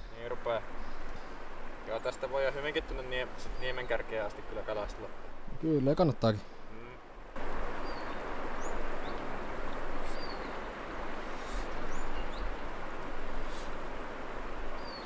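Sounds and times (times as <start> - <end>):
river rapids rushing: 0.0 - 15.0
small bird chirping: 7.8 - 12.6.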